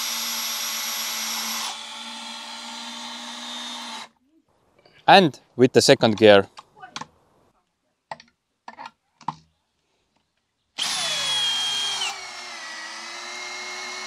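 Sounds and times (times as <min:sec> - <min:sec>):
drill motors whining: 0:00.0 - 0:04.1, 0:10.8 - 0:14.0.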